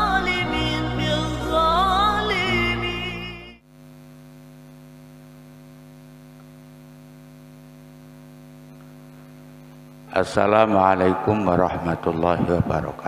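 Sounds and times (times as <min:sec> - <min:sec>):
electrical mains hum: 0:03.6 - 0:13.0.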